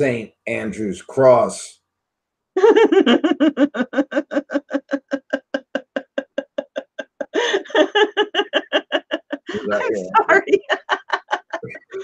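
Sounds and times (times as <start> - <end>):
woman laughing hard: 2.6 - 12.0.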